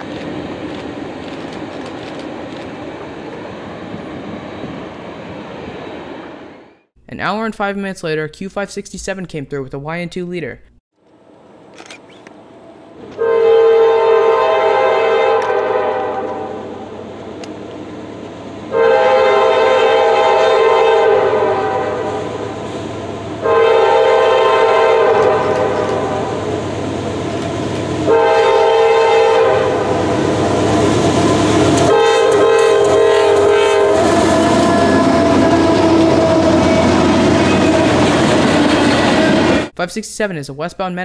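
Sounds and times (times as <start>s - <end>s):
train wheels on rails: 0.0s - 6.5s, 14.6s - 18.7s, 22.1s - 39.7s
locomotive air horn blasts: 13.2s - 16.8s, 18.7s - 22.4s, 23.4s - 26.4s, 28.0s - 30.0s, 31.8s - 36.9s.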